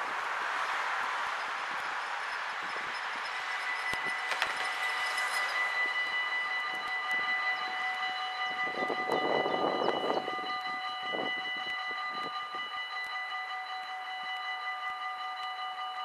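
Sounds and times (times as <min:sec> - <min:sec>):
rushing noise: 0:00.0 - 0:07.4
level crossing bells ringing: 0:01.7 - 0:16.0.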